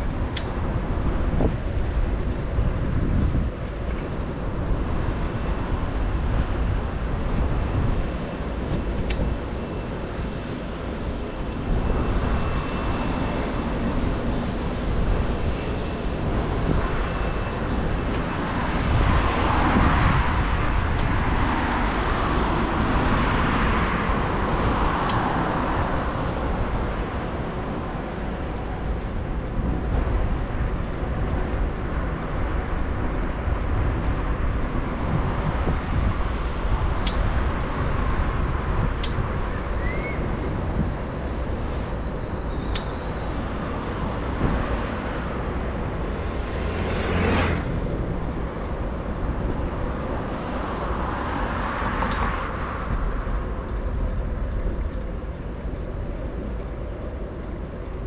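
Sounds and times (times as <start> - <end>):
traffic: 0.0 - 58.0
wind rumble on microphone: 0.0 - 58.0
vehicle passing: 44.2 - 49.1.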